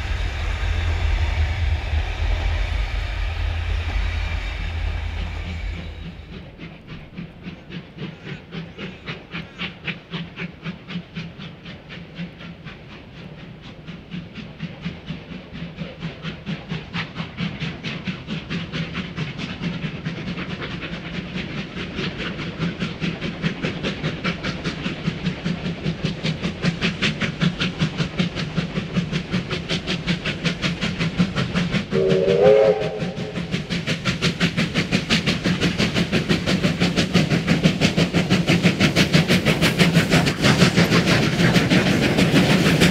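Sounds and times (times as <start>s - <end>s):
steam locomotive exhaust beats: 0.0s - 42.9s
steam whistle blast: 31.9s - 33.4s.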